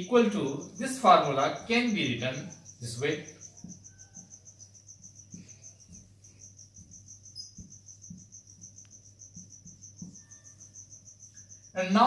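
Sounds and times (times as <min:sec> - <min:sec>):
high-pitched pulsing chirping: 0:00.0 - 0:12.0.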